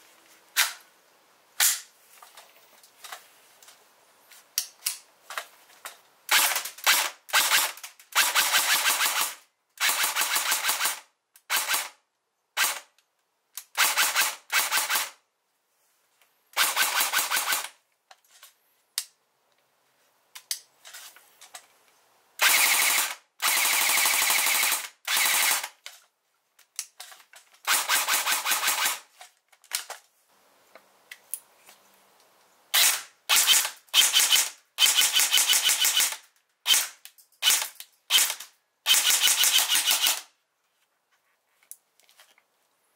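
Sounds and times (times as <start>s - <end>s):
airsoft gun full-auto bursts: 6.3s - 12.0s, 12.6s - 12.9s, 13.8s - 15.2s, 16.6s - 17.8s, 22.4s - 25.8s, 27.7s - 29.1s, 32.7s - 40.3s.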